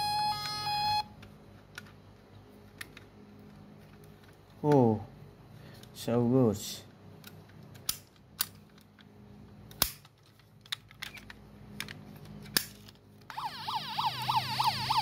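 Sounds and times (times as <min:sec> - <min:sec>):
toy siren wailing: 0:00.0 - 0:01.1, 0:13.3 - 0:15.0
small clicks of toy handling: 0:01.2 - 0:04.9, 0:05.7 - 0:06.0, 0:07.2 - 0:13.4.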